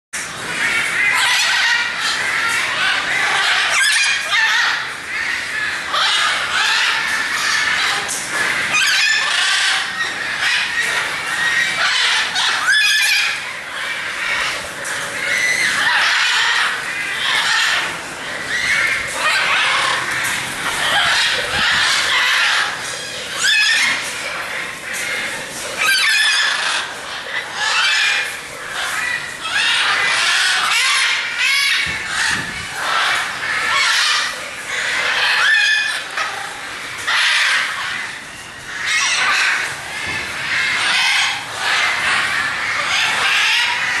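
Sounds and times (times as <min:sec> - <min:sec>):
macaws squawking: 0:00.2 - 0:44.0.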